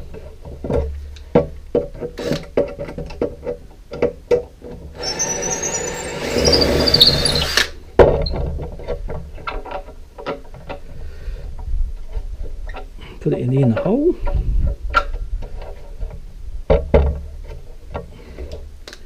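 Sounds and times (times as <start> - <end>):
cordless drill whining: 5.0 - 7.8.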